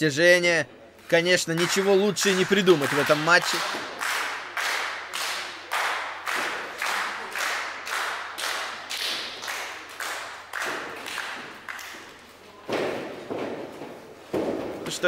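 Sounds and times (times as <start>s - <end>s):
crowd clapping in unison: 1.4s - 12.4s.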